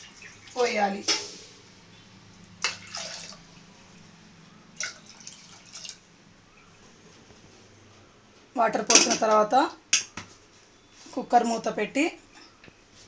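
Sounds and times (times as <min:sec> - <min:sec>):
water pouring and splashing: 0:00.0 - 0:01.6, 0:02.6 - 0:03.5, 0:04.8 - 0:06.0.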